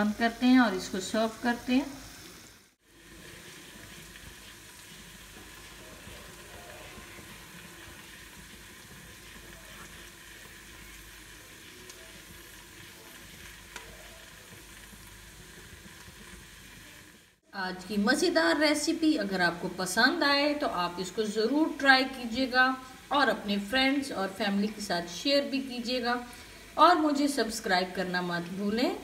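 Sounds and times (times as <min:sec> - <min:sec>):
food sizzling in a frying pan: 0:00.0 - 0:29.0.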